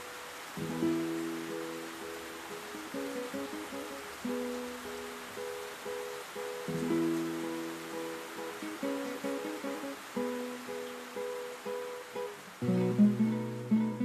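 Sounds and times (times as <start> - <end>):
plucked acoustic guitar: 6.4 - 14.0.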